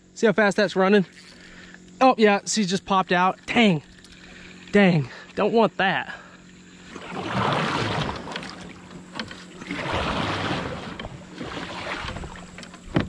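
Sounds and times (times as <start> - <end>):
kayak paddle strokes in water: 2.8 - 13.0.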